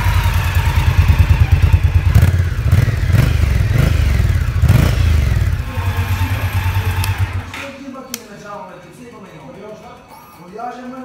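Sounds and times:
motorcycle engine idling: 0.0s - 7.5s.

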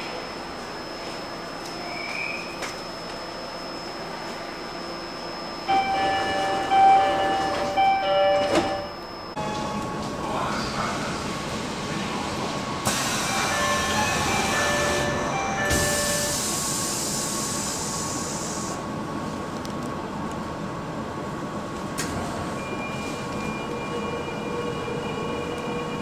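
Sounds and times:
door-closing chime: 5.7s - 9.4s, 13.6s - 16.3s
loud hiss of train doors: 12.8s - 18.9s.

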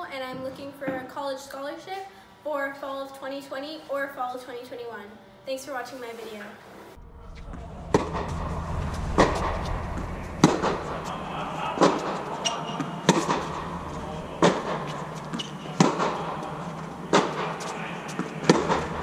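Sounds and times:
steady low hum: 6.9s - 19.0s
racket hitting tennis ball: 10.5s - 19.0s.

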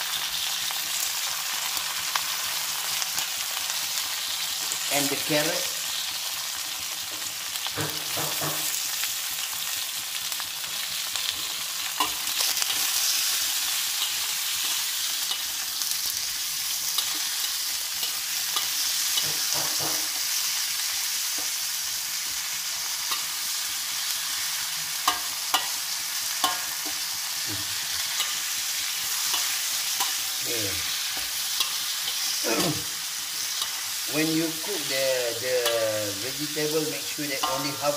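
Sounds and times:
food sizzling in hot oil: 0.0s - 37.9s
metal spatula scraping wok: 11.2s - 21.6s, 23.0s - 35.0s, 35.6s - 37.9s.

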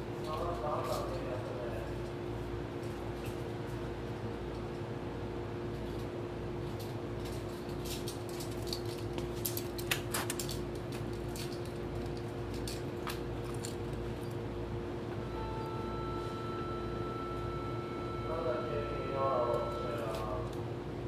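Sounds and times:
electrical hum: 0.0s - 21.0s
light clicks and rattles: 5.8s - 14.4s
steady high tone: 15.2s - 20.6s.

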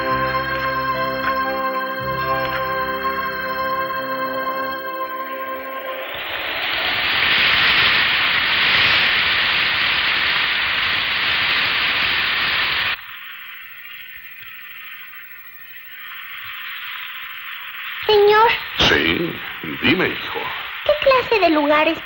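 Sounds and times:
heavy rain falling: 5.8s - 13.0s, 18.0s - 22.0s.

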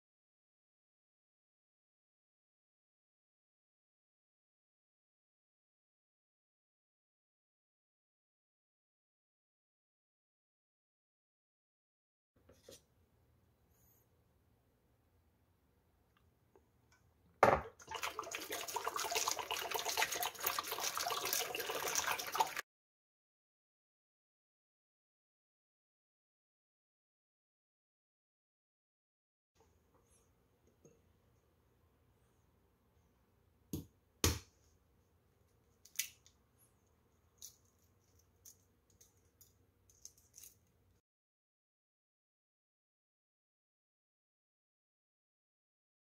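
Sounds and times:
water pouring into plastic bowl: 17.6s - 22.6s
egg shell cracking: 35.8s - 36.3s.

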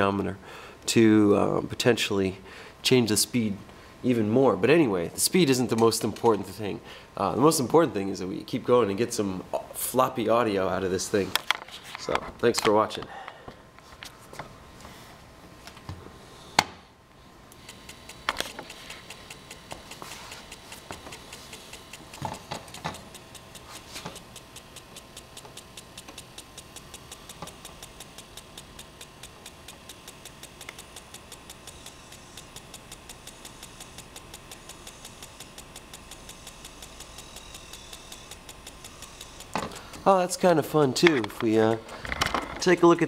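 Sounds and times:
steady mechanical ticking: 17.4s - 43.0s.

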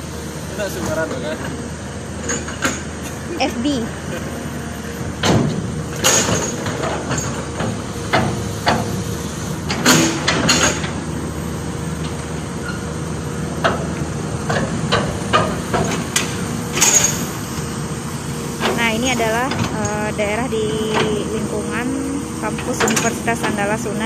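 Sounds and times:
machinery humming: 0.0s - 24.0s
sharp knocks and clanks: 5.2s - 9.0s, 9.7s - 11.0s, 13.6s - 17.3s.

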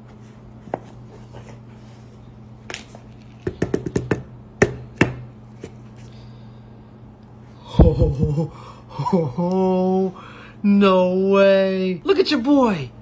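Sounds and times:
steady low hum: 0.0s - 13.0s
can knocking against ceramic plate: 3.4s - 5.2s.

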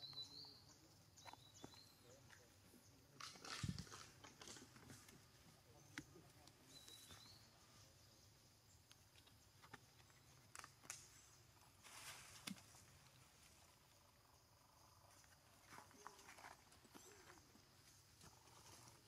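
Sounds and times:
light rustle: 9.0s - 13.9s.

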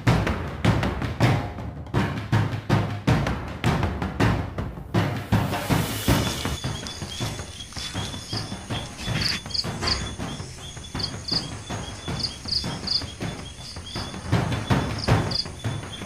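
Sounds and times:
night insects chirping: 5.3s - 16.0s.

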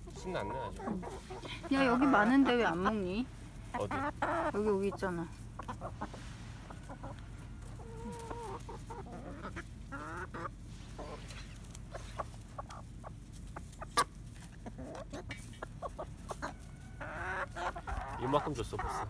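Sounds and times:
hens clucking: 0.0s - 19.0s.

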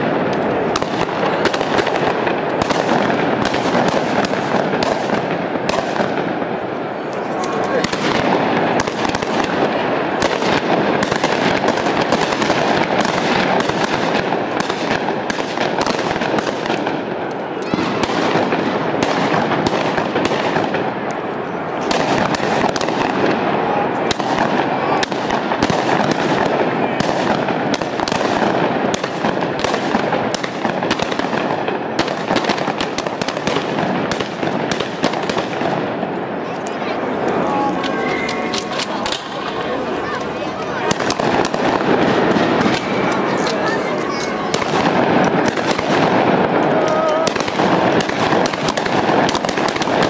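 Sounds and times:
crowd voices: 0.0s - 50.0s
firecrackers cracking and banging: 0.0s - 50.0s.

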